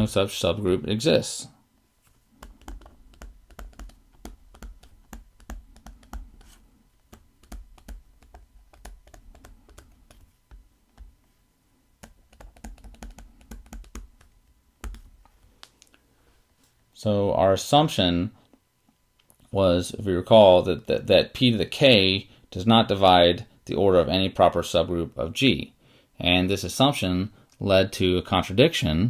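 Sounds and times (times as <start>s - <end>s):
stylus tapping on tablet screen: 2.4s - 11.2s, 12.0s - 15.2s.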